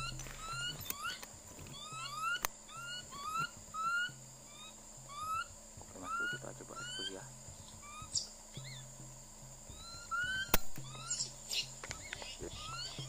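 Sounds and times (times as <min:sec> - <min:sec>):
short rising chirping calls: 0:00.0 - 0:13.0
sharp click: 0:10.5 - 0:10.9.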